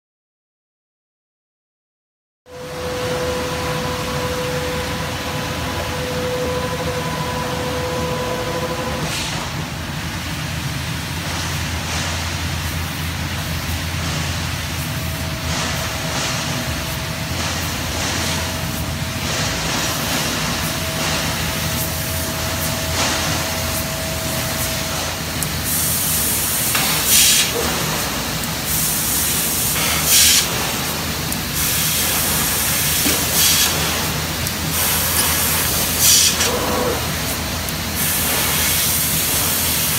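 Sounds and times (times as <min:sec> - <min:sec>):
laser cutter machine hum: 0:02.5 - 0:09.8, 0:14.5 - 0:39.9
loud hissing bursts: 0:09.0 - 0:39.9.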